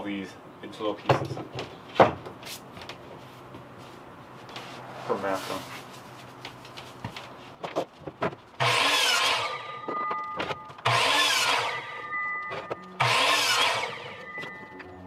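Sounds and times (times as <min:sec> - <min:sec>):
saw blade whine running down: 0:08.6 - 0:09.8, 0:10.9 - 0:12.2, 0:13.0 - 0:14.8
electric saw cutting wood: 0:08.6 - 0:09.9, 0:10.8 - 0:15.0.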